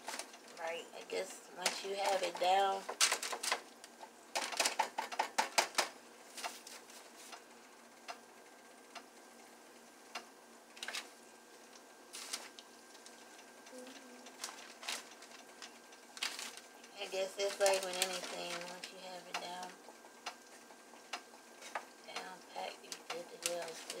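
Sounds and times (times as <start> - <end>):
kitchen clicks and taps: 4.4 - 5.9.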